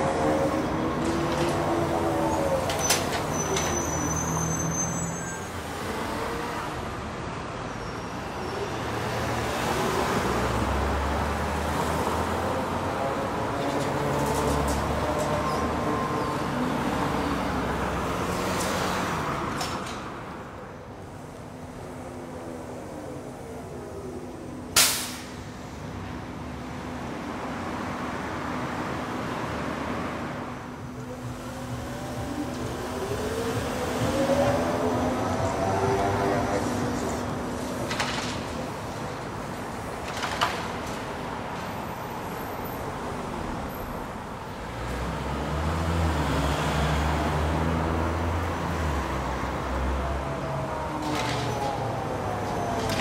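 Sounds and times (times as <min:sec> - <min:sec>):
cars passing: 0:00.0 - 0:53.0
trolleybus humming: 0:00.0 - 0:53.0
air brake hiss: 0:24.8 - 0:25.4.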